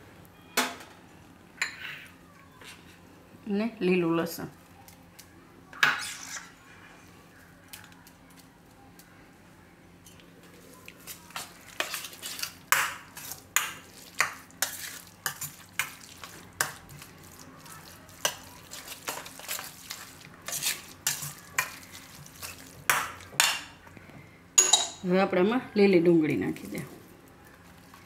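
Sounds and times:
metal spoon scraping steel bowl: 5.8 - 6.6.

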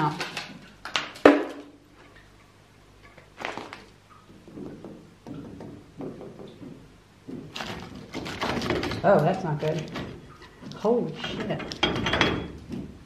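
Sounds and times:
dull metal knocks: 4.3 - 10.4, 11.2 - 13.0
rusted metal scraping: 7.5 - 12.6.

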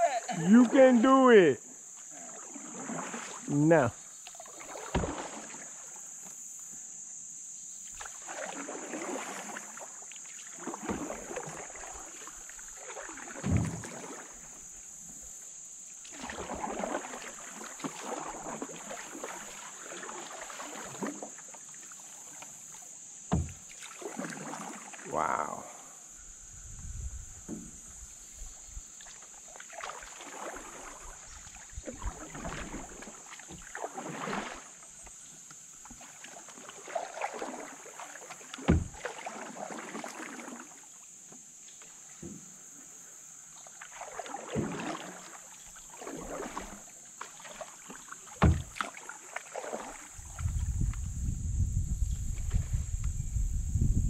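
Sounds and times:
steady high hiss: 0.0 - 2.5
paddle swishing through water: 0.0 - 6.9, 7.6 - 53.8.

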